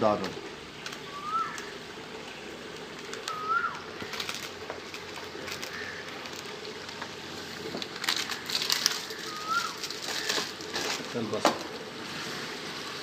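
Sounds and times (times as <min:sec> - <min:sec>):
crackling: 0:00.0 - 0:13.0
food simmering and sizzling in pot: 0:00.0 - 0:13.0
bird chirp: 0:00.7 - 0:02.5, 0:03.2 - 0:03.9.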